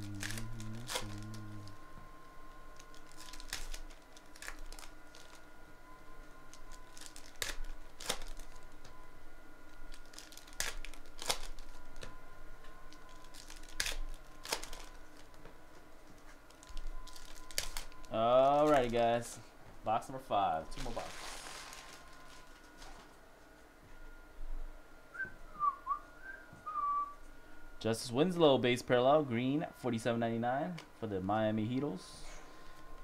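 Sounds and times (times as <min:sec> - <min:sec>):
foil wrappers crinkling and tearing: 0:00.0 - 0:01.8, 0:02.7 - 0:05.5, 0:06.5 - 0:08.9, 0:09.7 - 0:12.1, 0:12.8 - 0:15.4, 0:16.4 - 0:19.3, 0:20.7 - 0:23.1.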